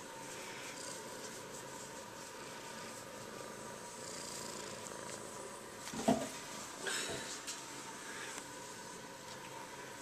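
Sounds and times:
steady hiss: 0.0 - 10.0
kitten purring: 3.4 - 5.6.

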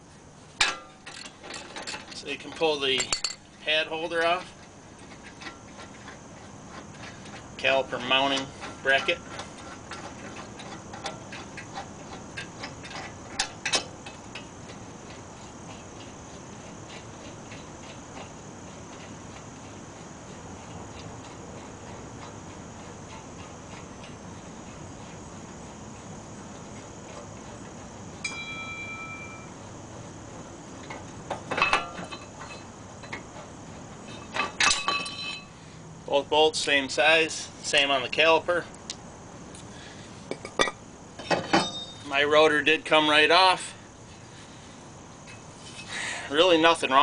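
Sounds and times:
steady background hiss: 0.0 - 47.0
metallic clinks of bolts: 2.9 - 3.4.

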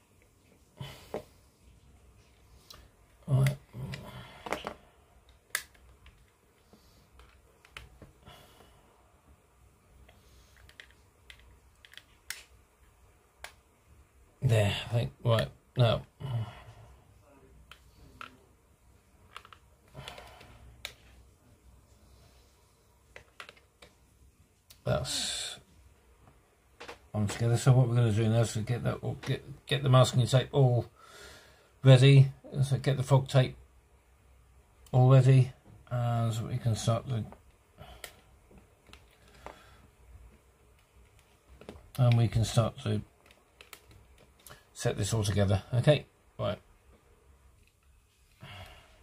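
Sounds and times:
plastic parts clicking and tapping: 3.4 - 8.1, 10.5 - 13.6, 19.2 - 21.1, 23.1 - 24.0, 43.2 - 44.6.

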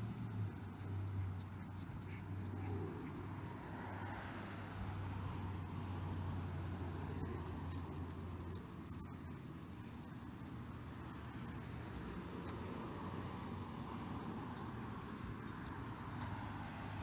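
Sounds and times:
dog claws ticking on pavement: 0.0 - 10.6
dog tags and leash jingling: 0.0 - 17.0.

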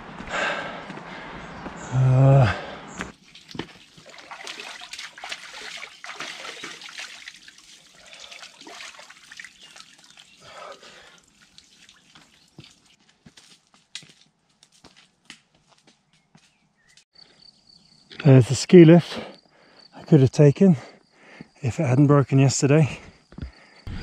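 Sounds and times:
water splashing into wooden trough: 3.2 - 12.8.

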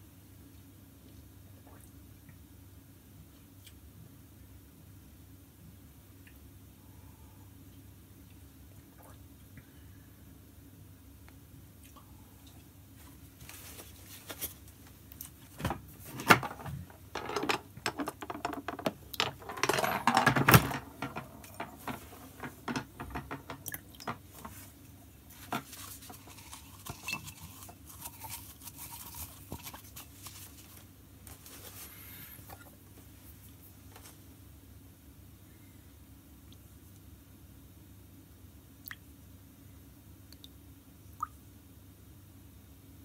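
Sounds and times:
spoons and cups clinking: 26.2 - 28.4.

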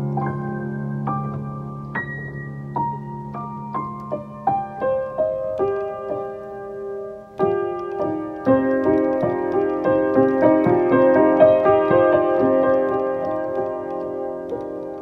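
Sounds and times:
solo piano improvisation: 0.0 - 15.0.

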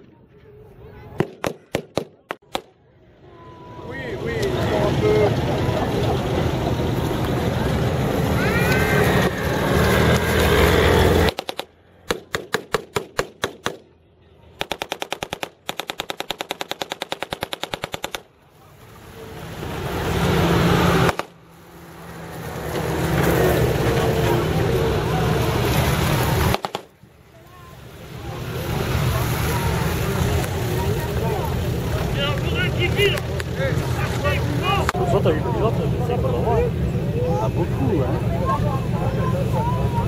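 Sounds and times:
jeeps driving past: 2.8 - 13.0, 13.9 - 40.0
truck engine running: 3.8 - 40.0
automatic weapon fire: 14.6 - 18.2, 26.5 - 26.9.

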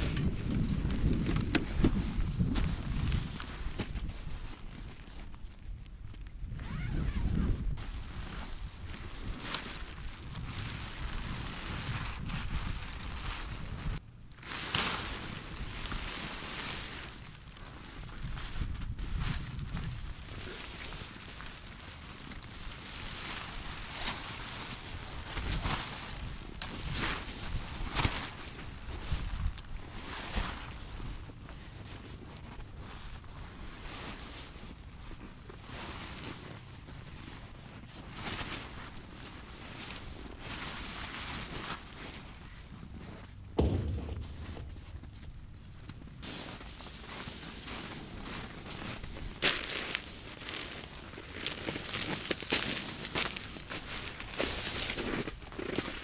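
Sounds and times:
wind buffeting microphone: 0.0 - 4.8, 5.7 - 14.0, 18.0 - 20.5, 43.5 - 46.3
tent fabric rustling and flapping: 0.0 - 5.7, 6.5 - 56.0
wind rumbling on microphone: 0.0 - 33.9, 39.4 - 52.5.

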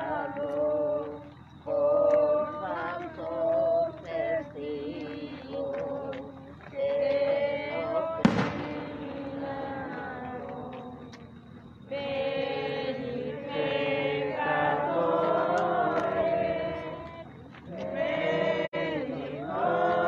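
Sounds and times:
group singing a hymn: 0.0 - 20.0
firework bang: 8.2 - 9.4.

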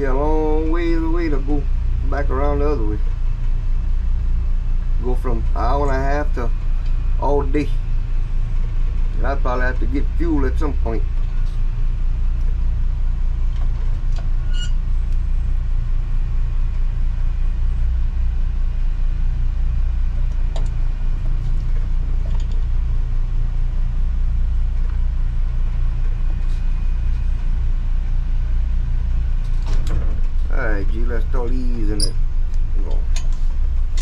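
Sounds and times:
boat engine droning: 0.0 - 34.0.

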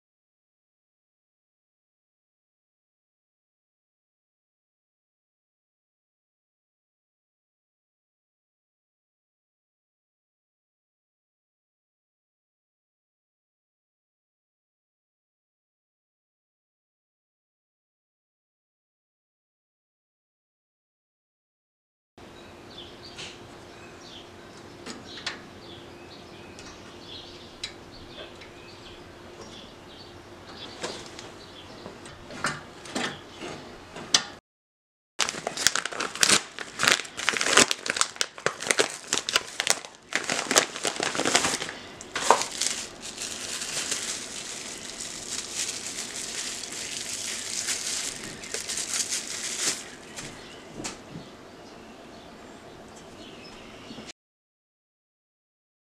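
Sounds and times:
paper mailer crinkling: 35.2 - 50.4.

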